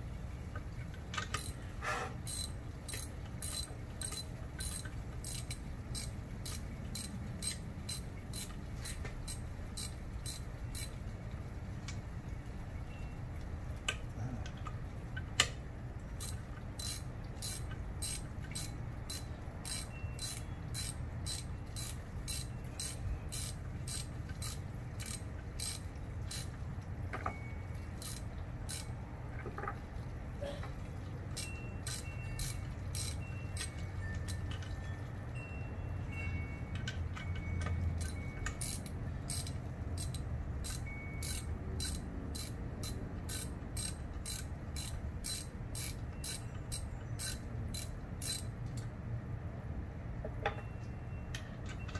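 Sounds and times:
ratchet wrench clicking: 0:01.2 - 0:01.6, 0:02.2 - 0:11.0, 0:16.2 - 0:26.6, 0:28.0 - 0:28.9, 0:31.4 - 0:34.5, 0:36.8 - 0:48.9.

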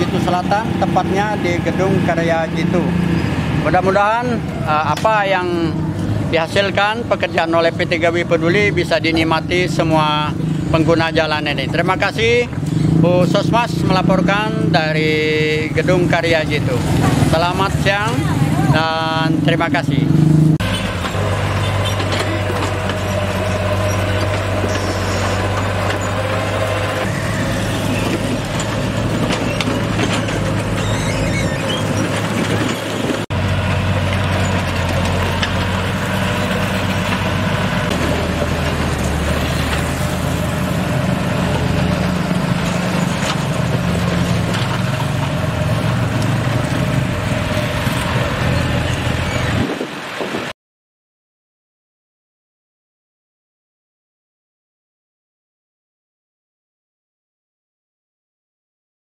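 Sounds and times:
diesel engine low drone: 0:00.0 - 0:50.3.

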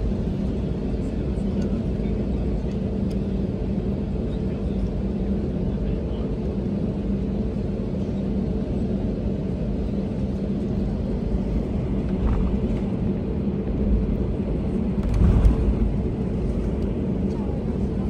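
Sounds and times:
jet engines idling: 0:00.0 - 0:18.0
aircraft bump: 0:11.9 - 0:13.0, 0:14.6 - 0:17.8.

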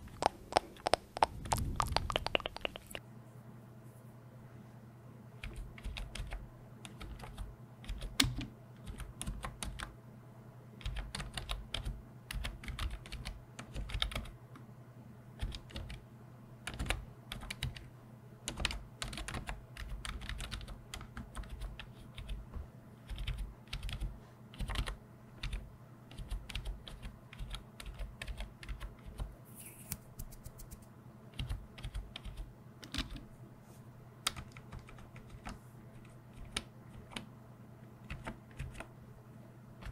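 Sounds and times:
typing on computer keyboard: 0:00.2 - 0:03.0, 0:05.4 - 0:09.9, 0:10.8 - 0:14.3, 0:15.4 - 0:16.0, 0:16.6 - 0:17.9, 0:18.5 - 0:22.4, 0:23.1 - 0:29.3, 0:31.4 - 0:33.2, 0:34.2 - 0:37.3, 0:38.0 - 0:38.9.

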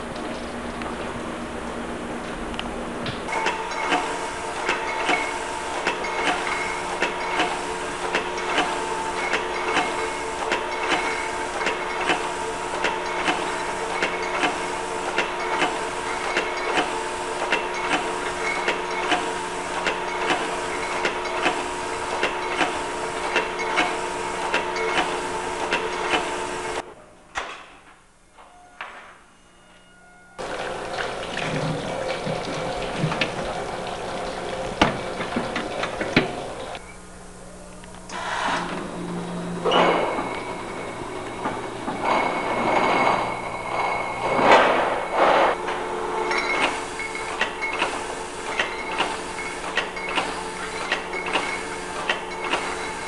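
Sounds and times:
filling machine humming: 0:00.0 - 0:26.8, 0:30.4 - 0:53.0
machine clacking: 0:03.3 - 0:26.8, 0:39.6 - 0:53.0.

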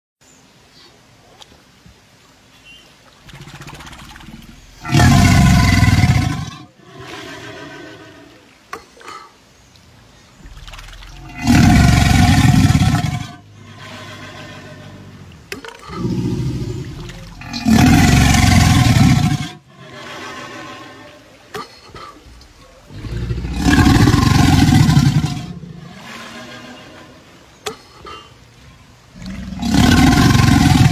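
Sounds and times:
crocodilian growling: 0:04.2 - 0:08.4, 0:10.9 - 0:21.2, 0:22.6 - 0:27.2, 0:29.2 - 0:30.9.

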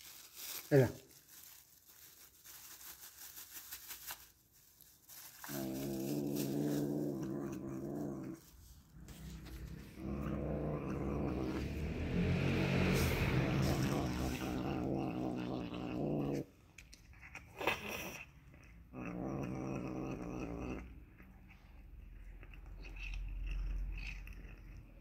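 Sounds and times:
cat growling: 0:05.4 - 0:16.6, 0:17.2 - 0:25.0.

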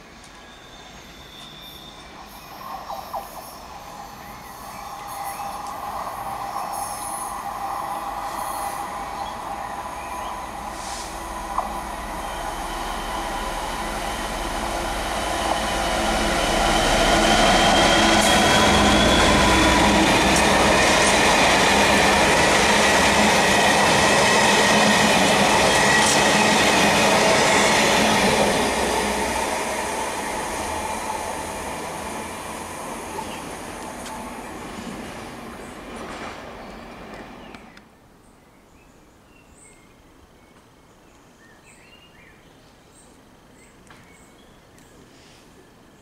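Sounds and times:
train passing: 0:00.0 - 0:37.8
high wheel squeal: 0:00.5 - 0:02.4, 0:15.0 - 0:20.8.

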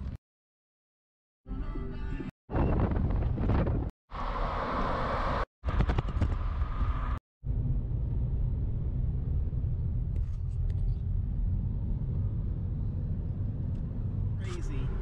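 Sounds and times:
road and engine rumble in car: 0:06.4 - 0:15.0.

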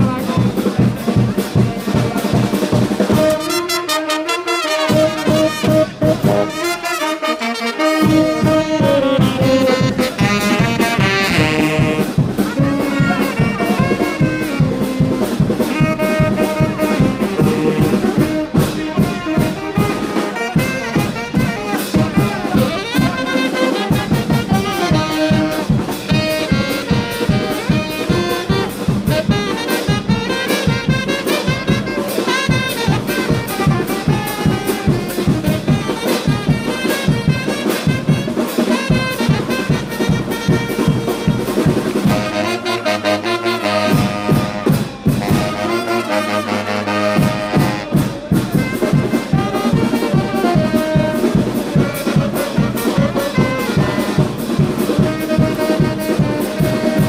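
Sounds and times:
brass band playing: 0:00.0 - 0:57.0
steady drum beat: 0:00.0 - 0:57.0.

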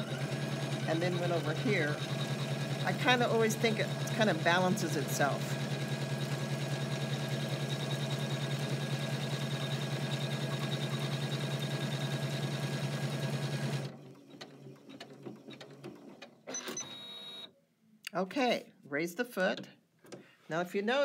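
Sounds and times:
embroidery machine stitching: 0:00.0 - 0:17.4.

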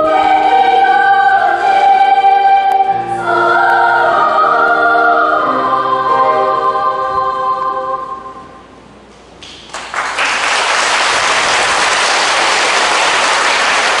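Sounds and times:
children's choir singing: 0:00.0 - 0:08.7
audience applause: 0:09.6 - 0:14.0.

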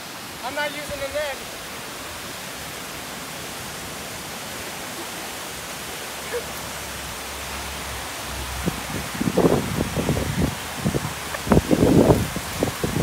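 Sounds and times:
waterfall rushing into pool: 0:00.0 - 0:13.0.

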